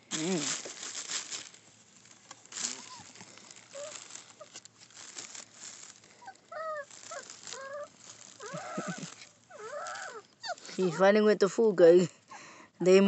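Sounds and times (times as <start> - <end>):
puppies rustling on crinkly bedding: 0.0 - 11.3
puppy whimpering: 2.7 - 4.5, 6.2 - 11.1.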